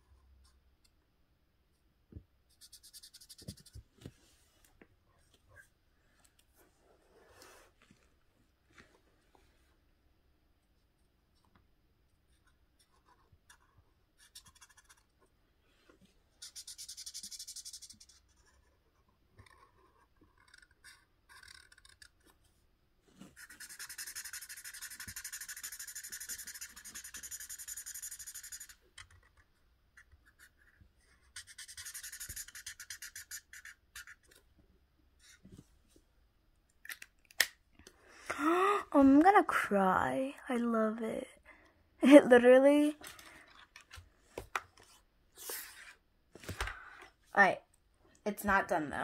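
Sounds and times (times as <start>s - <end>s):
marker scratching on paper: 2.5s - 3.8s, 12.3s - 15.2s, 16.4s - 22.3s, 23.2s - 29.4s, 30.0s - 34.4s, 44.8s - 46.0s.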